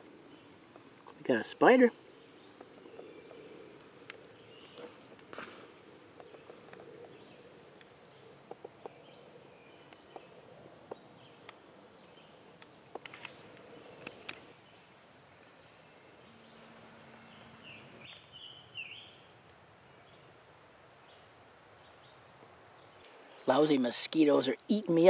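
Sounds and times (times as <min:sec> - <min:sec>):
woodland ambience: 0:00.0 - 0:25.0
soft rustles: 0:02.5 - 0:07.8, 0:13.0 - 0:14.6.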